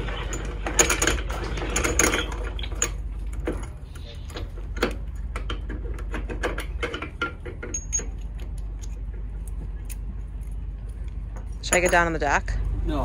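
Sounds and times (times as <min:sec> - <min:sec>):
steady low hum: 0:00.0 - 0:13.0
anchor chain links clinking: 0:07.5 - 0:12.1.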